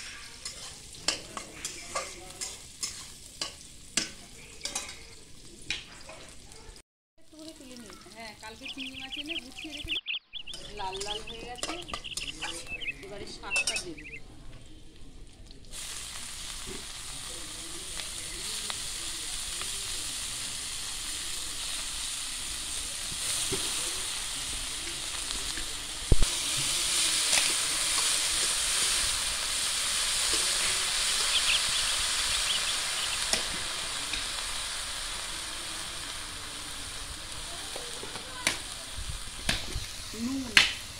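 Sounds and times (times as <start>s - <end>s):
greens sizzling in hot oil: 0.0s - 40.9s.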